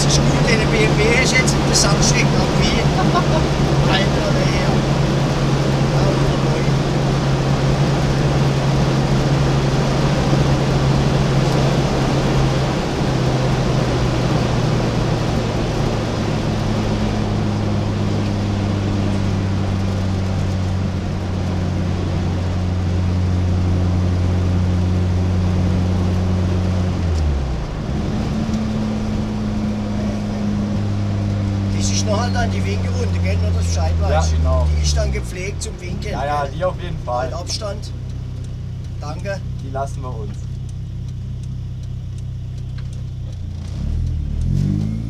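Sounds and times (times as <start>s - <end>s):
car engine at high revs: 0.0s - 45.0s
road and wind noise: 0.0s - 45.0s.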